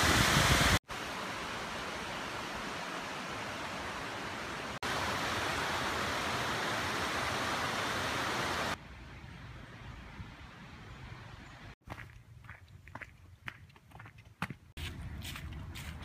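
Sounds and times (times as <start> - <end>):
stream rushing over rocks: 0.0 - 8.8.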